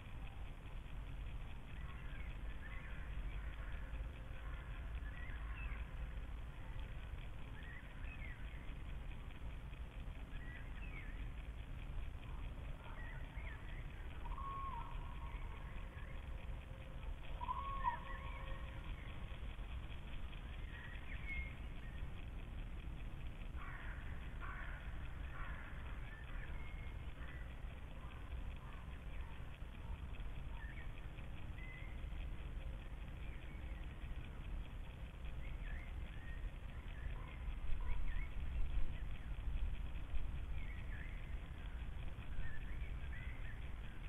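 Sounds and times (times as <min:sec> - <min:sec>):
steady low rumble: 0:00.0 - 0:44.0
songbird singing warbled phrases: 0:01.3 - 0:44.0
songbird whistled notes: 0:12.8 - 0:16.2, 0:17.3 - 0:19.1.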